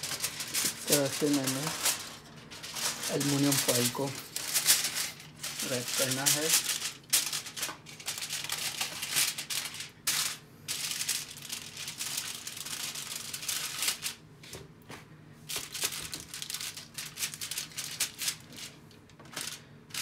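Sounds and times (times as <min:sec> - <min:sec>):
aluminium foil crinkling: 0:00.0 - 0:14.2, 0:15.4 - 0:20.0.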